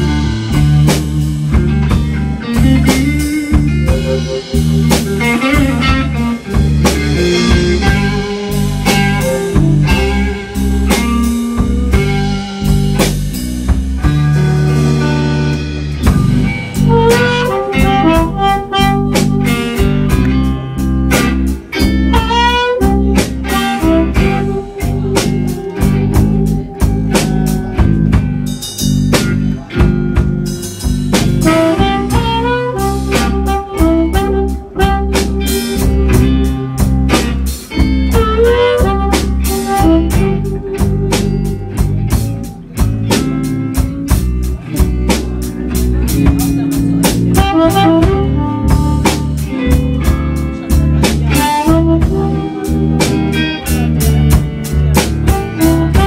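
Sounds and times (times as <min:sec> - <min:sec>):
drums: 0:00.0 - 0:56.0
steady bass line: 0:00.0 - 0:56.0
harmonica playing blues lead: 0:02.4 - 0:12.7, 0:16.6 - 0:28.0, 0:31.2 - 0:42.6, 0:46.4 - 0:56.0.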